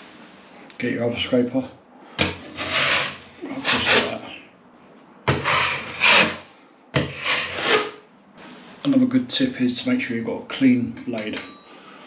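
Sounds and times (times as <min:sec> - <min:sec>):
metal scraper rasping on ceiling: 0:02.2 - 0:04.2, 0:05.3 - 0:08.0.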